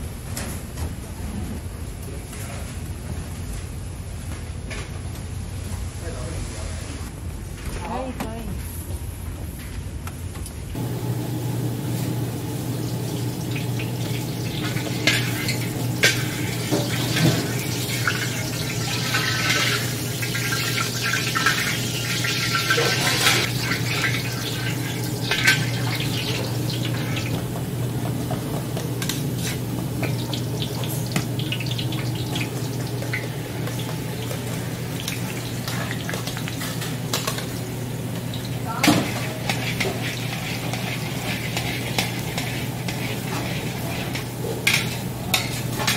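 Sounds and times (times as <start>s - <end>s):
gas burner hum and hiss: 0.0s - 45.9s
metal spatula scraping a wok: 39.0s - 45.9s.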